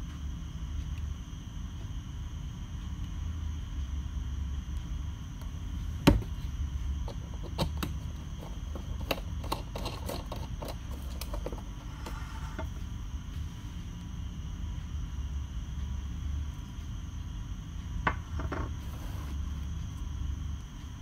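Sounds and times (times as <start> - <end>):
steady low hum: 0.0 - 21.0
carton knocking on counter: 6.0 - 6.3.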